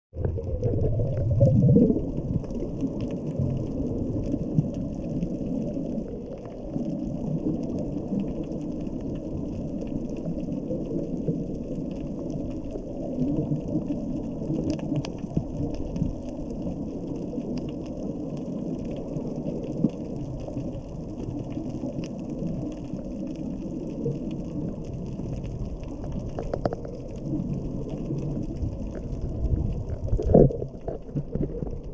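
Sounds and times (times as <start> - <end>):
underwater rumble: 0.1 - 31.9
faint clicks: 7.4 - 31.9.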